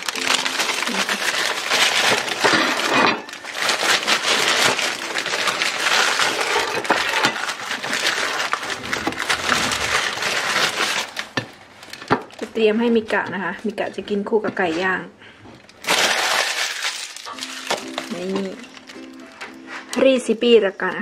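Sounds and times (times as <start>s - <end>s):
paper bag crinkling and rustling: 0.0s - 14.0s, 15.6s - 20.0s.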